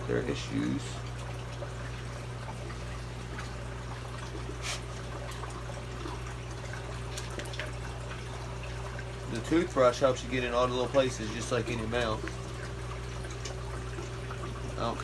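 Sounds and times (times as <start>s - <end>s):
low pump hum: 0.0s - 15.0s
small splashes: 0.0s - 15.0s
water trickling: 0.0s - 15.0s.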